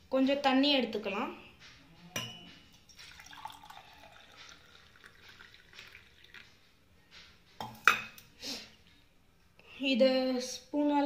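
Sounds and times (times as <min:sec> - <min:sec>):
water trickling into a steel cup: 0:02.7 - 0:06.6.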